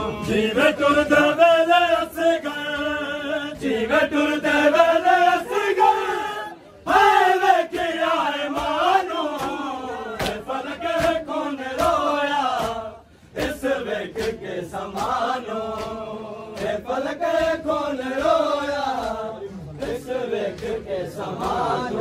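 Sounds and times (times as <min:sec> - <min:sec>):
men chanting a lament: 0:00.0 - 0:22.0
chest-beating slaps: 0:07.7 - 0:21.7.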